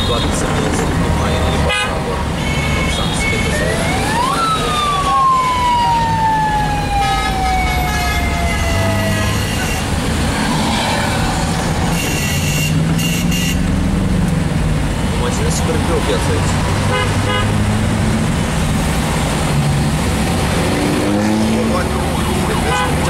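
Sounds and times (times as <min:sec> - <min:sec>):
road traffic: 0:00.0 - 0:23.0
car horn toots: 0:01.6 - 0:03.5, 0:11.9 - 0:13.7, 0:16.9 - 0:17.6, 0:22.6 - 0:23.0
siren wailing: 0:03.5 - 0:11.9.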